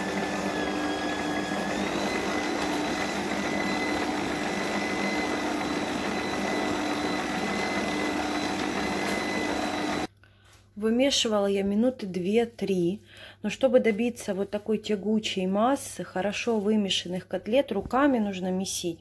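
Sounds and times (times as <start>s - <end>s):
kitchen mixer motor whining: 0.0s - 10.1s.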